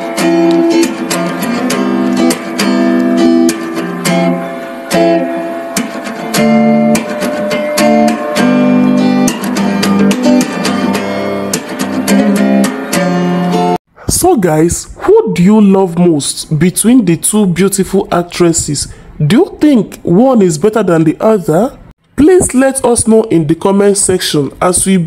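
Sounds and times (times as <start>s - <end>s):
guitar music: 0.0s - 13.8s.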